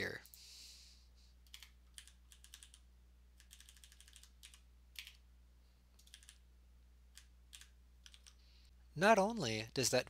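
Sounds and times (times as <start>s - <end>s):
computer keyboard keystrokes: 1.5s - 2.8s, 3.4s - 5.2s, 6.0s - 6.4s, 7.2s - 8.4s.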